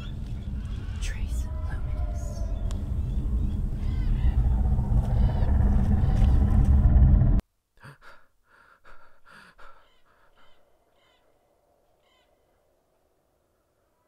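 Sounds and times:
bird chirps: 0.0 - 6.6, 9.8 - 12.5
man gasping breaths: 7.8 - 10.6.

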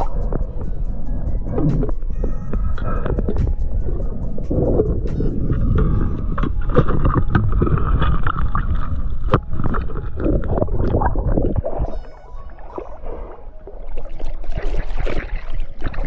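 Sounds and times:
underwater water rumble: 0.0 - 16.0.

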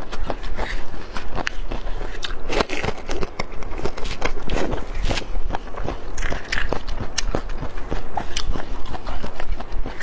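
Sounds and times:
bamboo shoot tearing and crackling: 0.0 - 5.4.

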